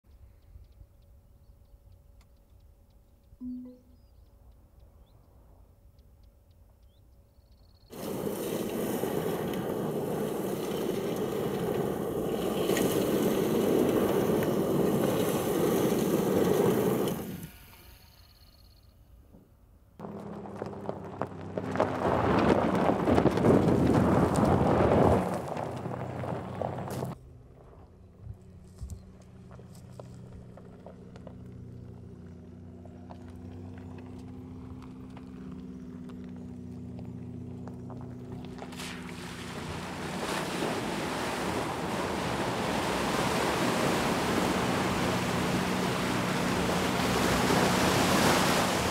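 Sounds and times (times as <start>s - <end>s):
electric car low hum: 0.1s - 48.9s
stones spraying and ticking: 7.9s - 17.5s, 20.0s - 27.2s
tyres churning gravel: 7.9s - 17.5s, 20.0s - 27.9s, 28.6s - 48.9s.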